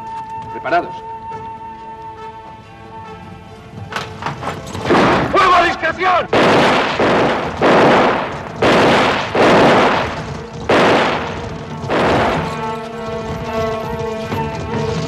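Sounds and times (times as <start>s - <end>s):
music: 0.0s - 15.0s
gunshots with echoing tail: 4.8s - 13.6s.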